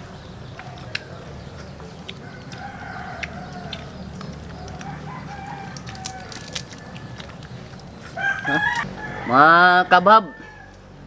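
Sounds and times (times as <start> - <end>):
crab shells cracking: 2.1 - 7.9
rooster crowing: 2.2 - 3.8, 4.6 - 7.4, 8.2 - 11.0.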